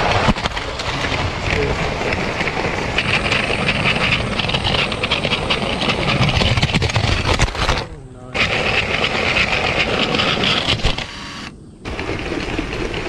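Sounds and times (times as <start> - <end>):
wheels clicking over rail joints: 0.0 - 13.0
toy train motor whirring: 3.0 - 7.8, 8.4 - 11.5.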